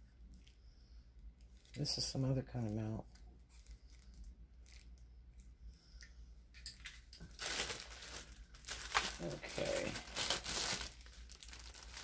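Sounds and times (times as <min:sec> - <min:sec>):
plastic bag crinkling: 0:01.5 - 0:05.0, 0:06.8 - 0:12.0.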